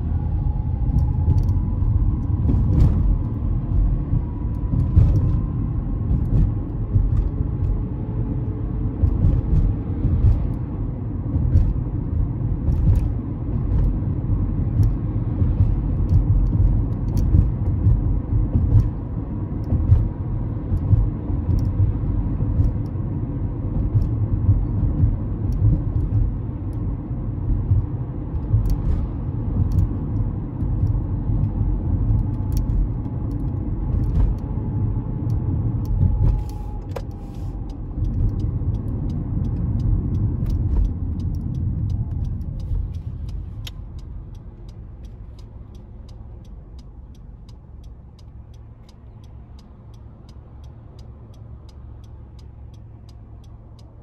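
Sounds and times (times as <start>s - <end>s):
car road and engine rumble: 0.0s - 54.0s
faint ticks: 35.2s - 54.0s.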